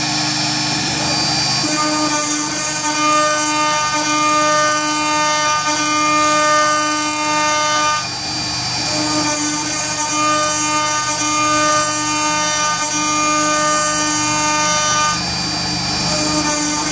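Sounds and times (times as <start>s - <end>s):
router spindle cutting metal: 0.0s - 16.9s.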